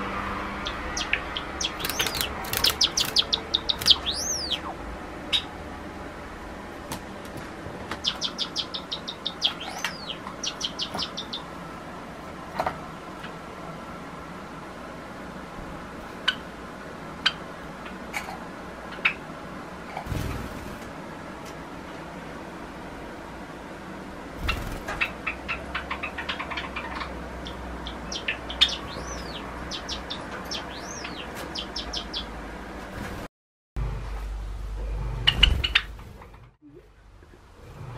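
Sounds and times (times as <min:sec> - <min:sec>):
sparrow singing piping notes: 0:00.5 - 0:05.5, 0:08.0 - 0:11.6, 0:24.4 - 0:32.4.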